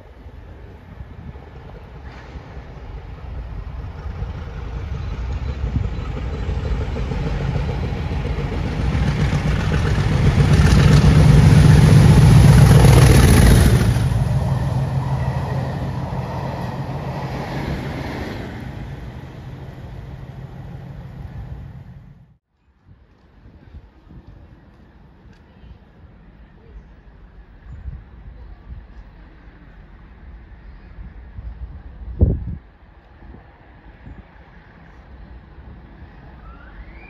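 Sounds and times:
train wheel rumble: 0.0s - 22.3s
diesel locomotive engines passing: 0.0s - 22.4s, 23.3s - 37.0s.

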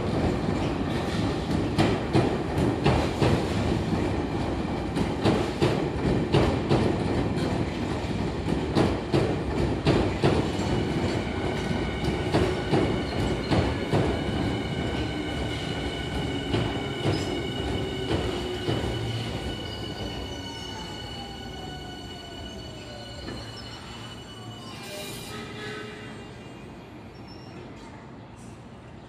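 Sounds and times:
train rumble: 0.0s - 28.8s
train wheels clicking on rail joints: 0.6s - 21.3s.

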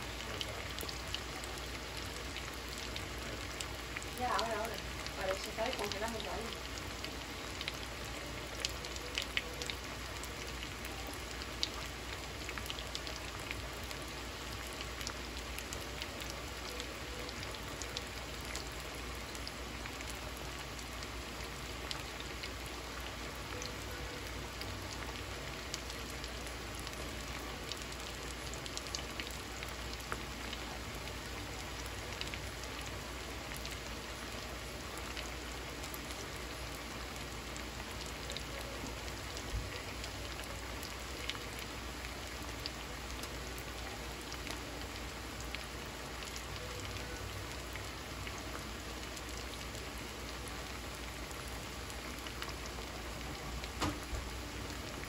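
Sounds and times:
potatoes sizzling in oil: 3.1s - 8.6s.

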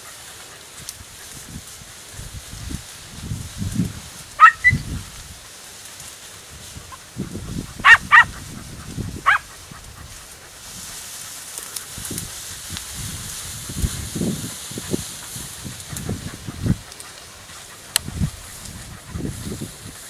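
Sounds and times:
rustling: 0.0s - 20.0s
dogs yelping barks: 4.4s - 5.0s, 7.6s - 10.6s.

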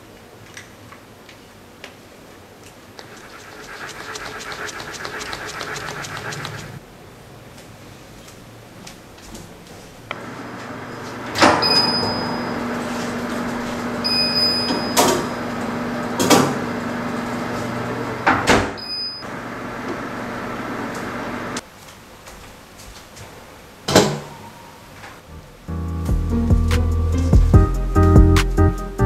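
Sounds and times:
oven humming: 10.1s - 21.6s.

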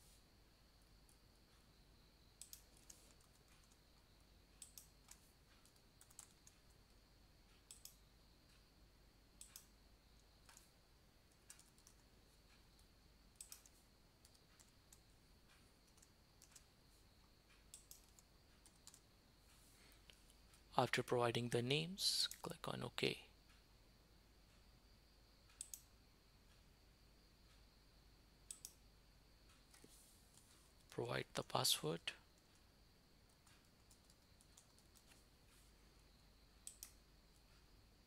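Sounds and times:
faint high-pitched hum: 0.0s - 38.0s
typing on computer keyboard: 2.4s - 3.8s, 4.6s - 7.0s, 7.6s - 8.0s, 9.4s - 10.7s, 11.3s - 12.1s, 12.8s - 15.0s, 15.8s - 16.7s, 17.6s - 19.0s, 25.6s - 25.9s, 28.5s - 28.8s, 33.3s - 35.2s, 36.6s - 37.0s.

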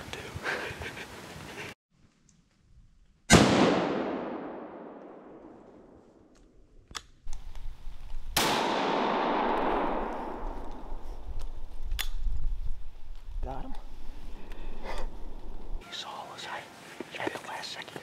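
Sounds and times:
rifle shot echoing: 3.3s - 6.0s, 8.4s - 11.0s.

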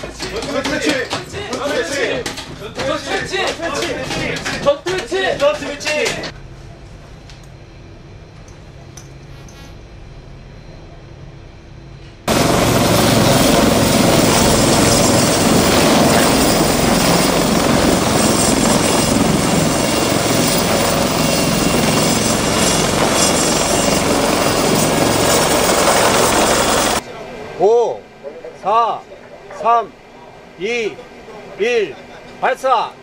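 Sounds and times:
helicopter rotors and turbine: 12.3s - 27.0s.

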